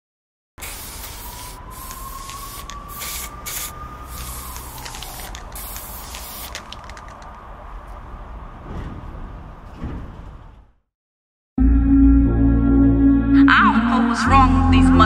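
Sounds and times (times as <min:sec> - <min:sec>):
spray can hissing: 0:00.6 - 0:07.1
small clicks: 0:04.5 - 0:07.4.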